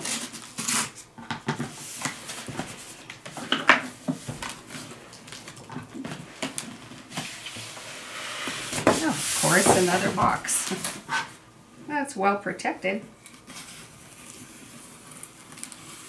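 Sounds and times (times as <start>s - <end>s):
knife cutting cardboard: 0.0s - 1.0s
cardboard rubbing and sliding: 6.2s - 11.4s.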